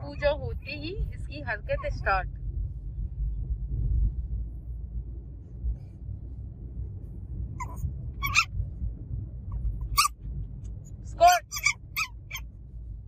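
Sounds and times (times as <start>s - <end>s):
car rumble in motion: 0.0s - 13.0s
puppy whimpering: 7.6s - 8.5s, 11.4s - 12.4s.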